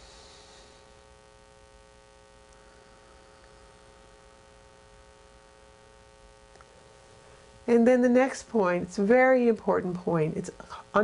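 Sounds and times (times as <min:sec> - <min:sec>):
background hiss: 0:00.0 - 0:11.0
electrical mains hum: 0:00.0 - 0:11.0.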